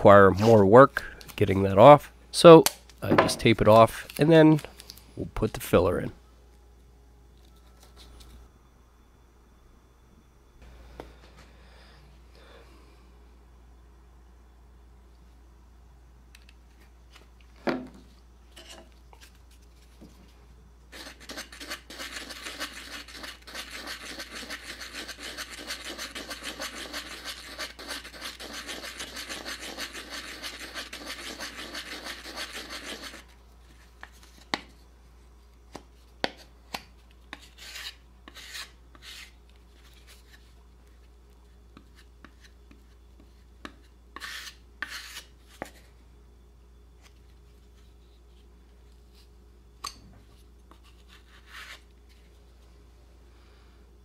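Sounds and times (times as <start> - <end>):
putty knife scraping on wood: 21.0 - 33.2, 37.3 - 39.3, 44.2 - 45.3.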